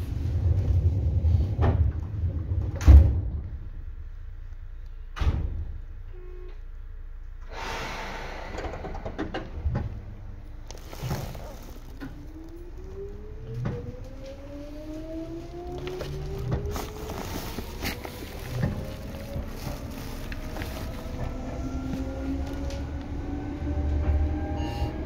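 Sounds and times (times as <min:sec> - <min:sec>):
air hiss: 0:07.5 - 0:09.4
electric train motors whining: 0:10.5 - 0:25.0.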